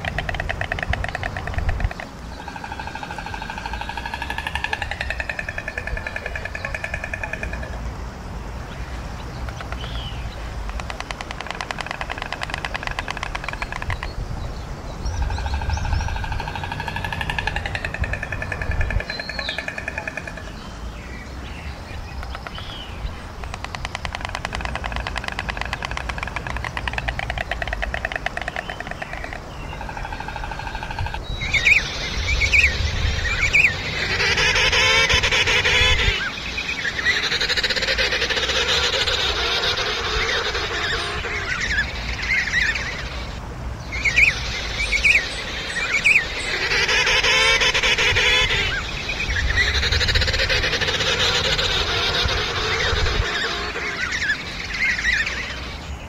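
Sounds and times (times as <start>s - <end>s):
penguin colony calling: 0.0s - 7.8s, 23.5s - 43.4s, 44.0s - 55.8s.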